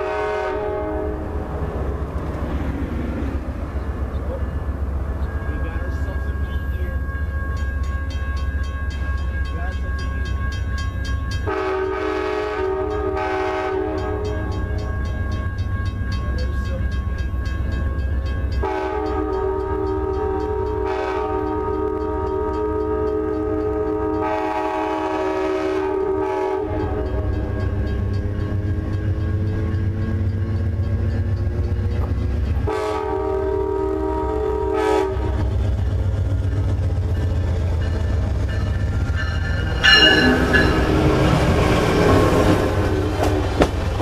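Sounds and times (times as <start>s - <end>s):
locomotive air horn blasts: 0.0s - 1.4s, 11.5s - 14.6s, 18.6s - 27.4s, 32.7s - 35.5s
low train rumble: 0.0s - 44.0s.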